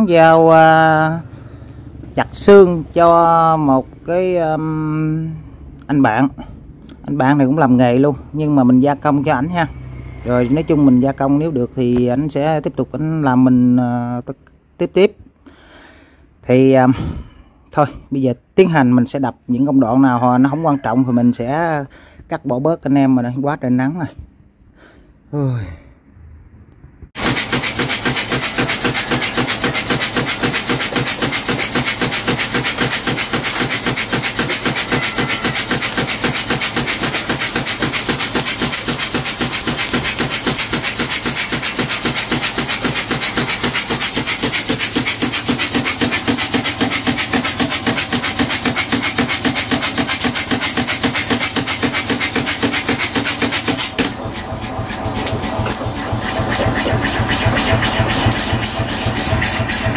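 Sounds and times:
power hammer motor running: 27.2s - 59.9s
power hammer ram striking: 27.2s - 59.9s.

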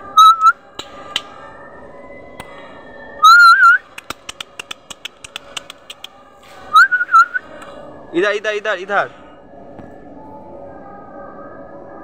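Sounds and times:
person whistling: 3.2s - 3.8s, 6.7s - 7.5s.

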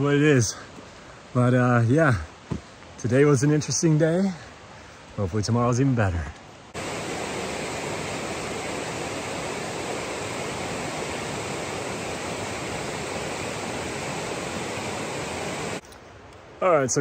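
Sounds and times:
river rushing over rapids: 6.8s - 15.8s.

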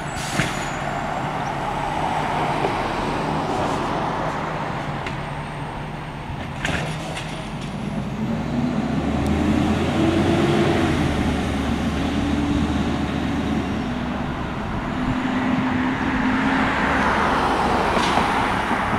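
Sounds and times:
garbage truck engine revving: 8.0s - 18.9s.

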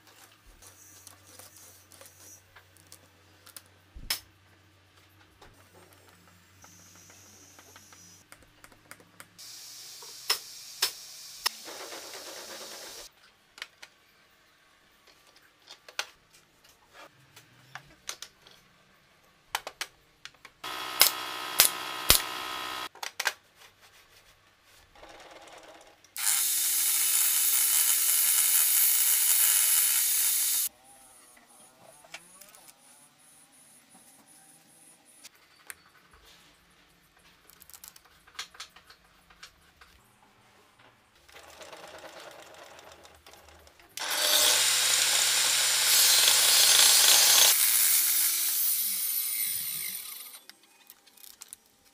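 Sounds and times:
power tool bursts: 20.6s - 22.9s, 26.2s - 30.7s, 44.0s - 50.4s
table saw cutting plywood: 20.6s - 22.9s, 26.2s - 30.7s, 44.0s - 50.4s.

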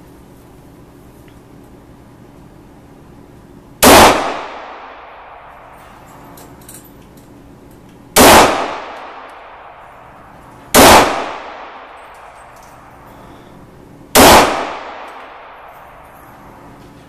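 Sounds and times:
loud pistol shots: 3.8s - 5.7s, 8.2s - 9.9s, 10.7s - 12.4s, 14.1s - 16.0s
reverberating shot tail: 3.8s - 5.8s, 8.2s - 13.0s, 14.1s - 16.1s.

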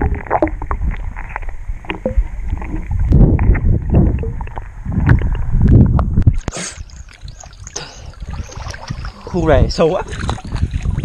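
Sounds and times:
underwater clicks: 0.0s - 9.3s, 10.0s - 11.0s
underwater rumble of moving water: 0.0s - 11.0s
water splashing and lapping: 6.2s - 11.0s.

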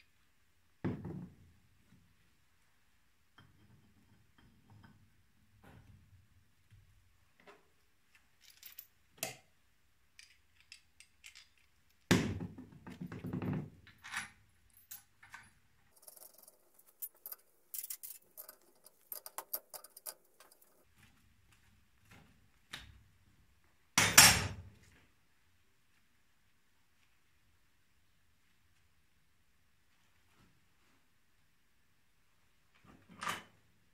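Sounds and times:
light metal clicks and clinks: 10.2s - 12.1s, 14.0s - 20.9s.

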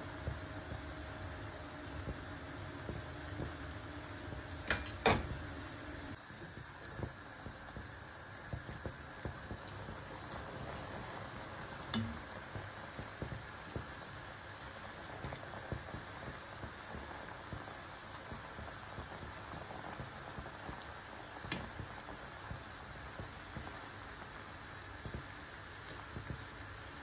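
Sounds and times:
syrup boiling and bubbling: 0.0s - 27.0s
ladle knocking against pot: 4.7s - 5.3s.

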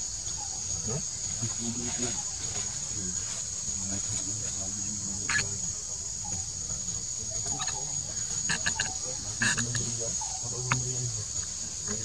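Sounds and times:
high-pitched insect drone: 0.0s - 12.0s
clucking calls and clicks: 5.0s - 12.0s.

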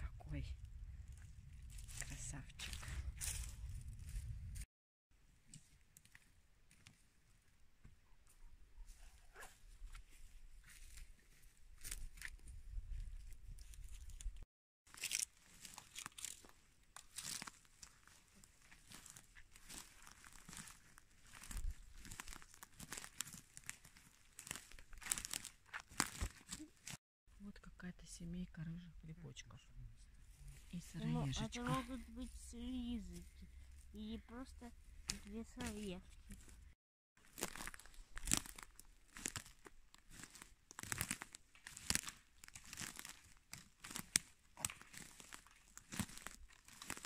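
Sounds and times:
pine needles crackling underfoot: 1.1s - 4.6s, 9.9s - 12.5s, 13.2s - 27.0s, 30.5s - 47.0s.

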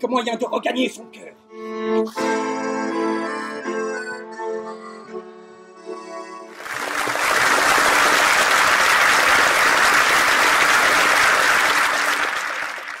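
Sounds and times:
guitar music: 0.8s - 6.6s
audience applauding: 6.5s - 13.0s.

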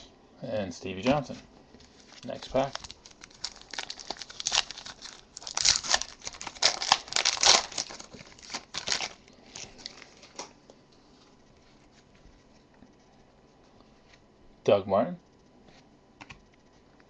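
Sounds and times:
foil wrapper crinkling: 1.8s - 10.6s.

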